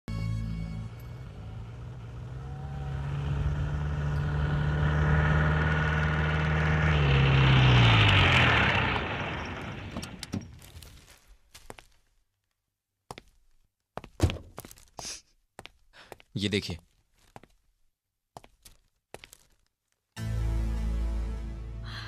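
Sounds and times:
jeep engine running: 0:00.1 - 0:10.5.

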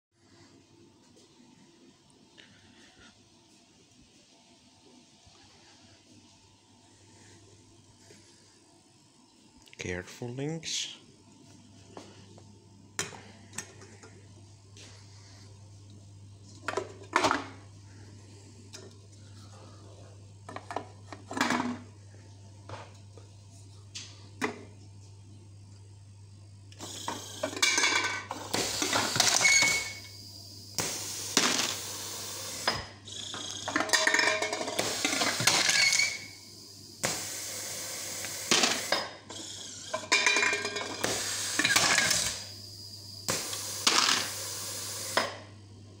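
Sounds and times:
steady low hum: 0:00.2 - 0:46.0
can crusher air burst and crunch: 0:26.8 - 0:32.9, 0:34.6 - 0:36.4, 0:37.0 - 0:39.1, 0:39.7 - 0:42.6, 0:43.2 - 0:45.3
clicks and clinks of cans: 0:33.6 - 0:35.9, 0:39.9 - 0:42.2.

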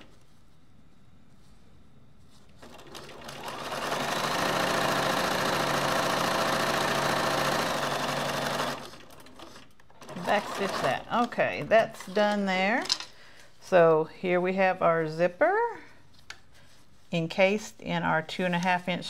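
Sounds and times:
sewing machine stitching: 0:02.6 - 0:12.2.

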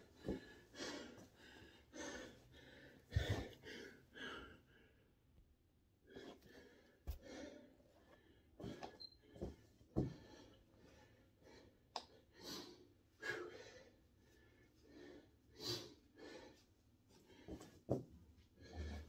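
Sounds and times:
man breathing forcefully: 0:00.0 - 0:04.8.

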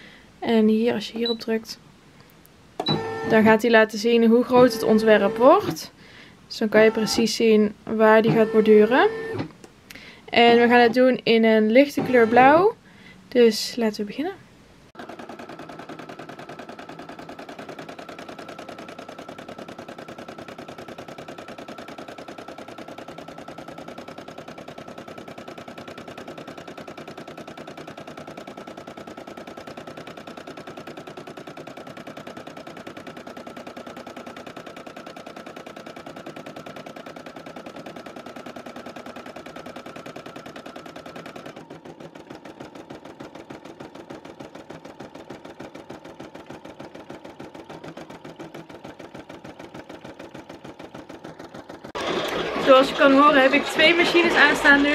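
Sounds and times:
embroidery machine needle hammering: 0:08.2 - 0:09.6, 0:11.9 - 0:12.7, 0:15.0 - 0:53.2.

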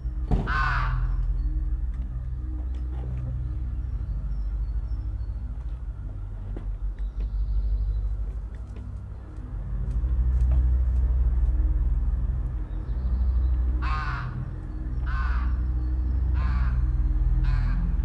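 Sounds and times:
steady low rumble: 0:00.0 - 0:18.0
raven cawing: 0:00.3 - 0:01.6, 0:13.7 - 0:18.0.

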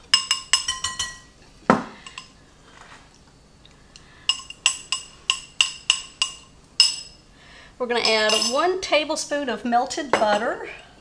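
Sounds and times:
glass bowls clinking: 0:00.0 - 0:01.4, 0:02.0 - 0:02.4, 0:03.9 - 0:07.2, 0:08.0 - 0:08.6.

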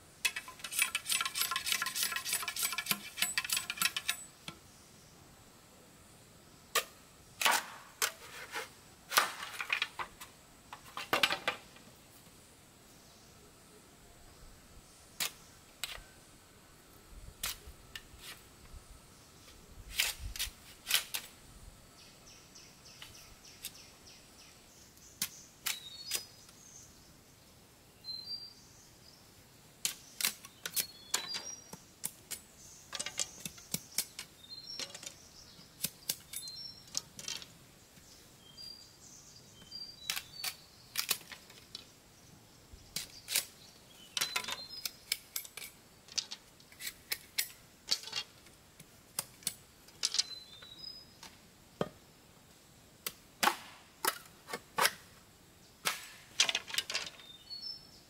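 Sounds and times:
sharp clicks and knocks: 0:00.2 - 0:04.6.

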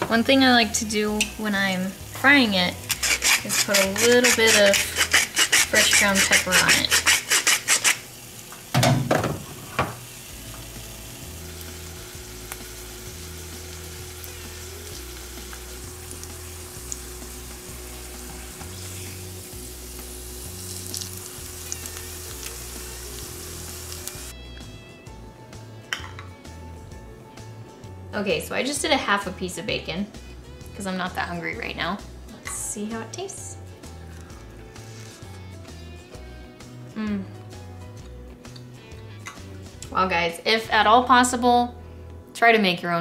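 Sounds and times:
soft background music: 0:00.0 - 0:43.0
bacon sizzling in a pan: 0:00.5 - 0:08.8, 0:09.4 - 0:24.4
pepper mill grinding: 0:02.8 - 0:08.1.

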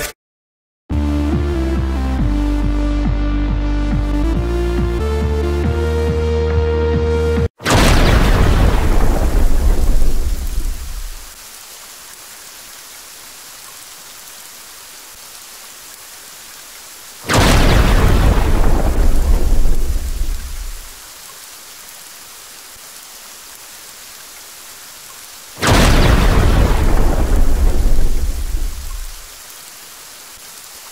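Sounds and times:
steady rain: 0:07.6 - 0:30.9
thunder: 0:07.7 - 0:11.3, 0:17.3 - 0:20.9, 0:25.6 - 0:29.2.

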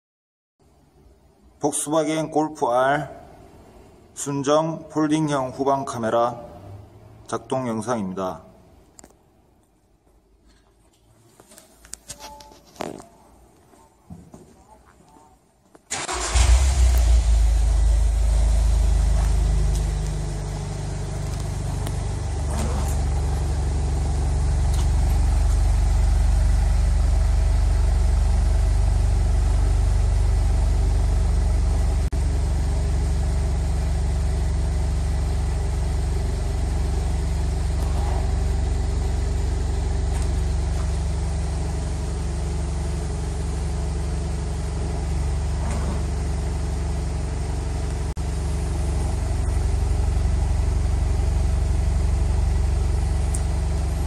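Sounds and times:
car engine idling: 0:15.9 - 0:54.0.

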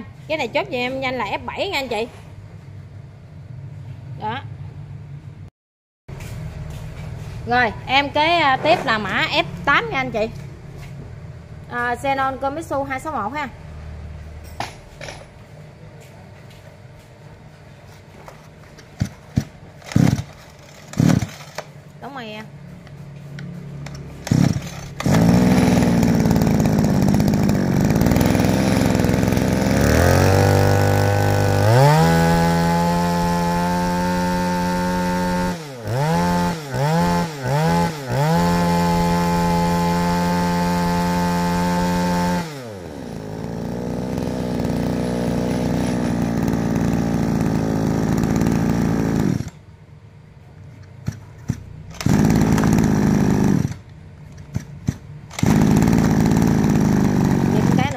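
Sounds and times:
pull starter cord: 0:18.8 - 0:21.8, 0:23.4 - 0:35.6, 0:36.2 - 0:49.6, 0:50.8 - 0:57.9
two-stroke brush cutter engine revving: 0:19.0 - 0:21.7, 0:23.8 - 0:49.6, 0:51.1 - 0:57.9.

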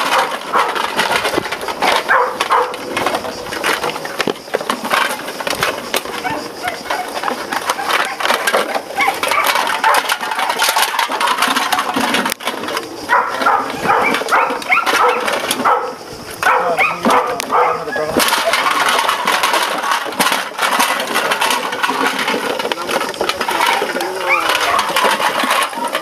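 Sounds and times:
plastic bottles crackling: 0:00.0 - 0:26.0
puppy cries: 0:08.9 - 0:10.0, 0:13.1 - 0:18.2.

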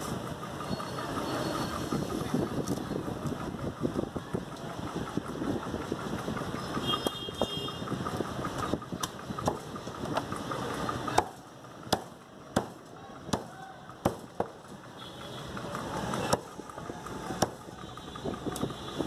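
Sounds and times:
steady background noise: 0:00.0 - 0:19.0
cleaver chopping on wooden block: 0:11.1 - 0:14.6.

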